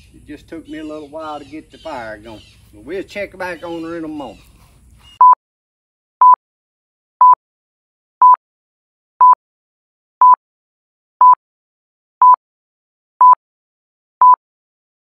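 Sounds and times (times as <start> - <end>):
short electronic beeps: 5.2 - 5.4.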